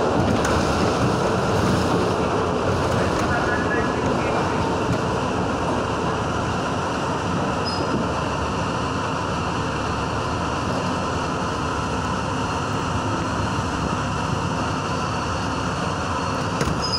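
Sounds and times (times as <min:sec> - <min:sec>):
subway train rumbling in tunnel: 0:00.0 - 0:16.9.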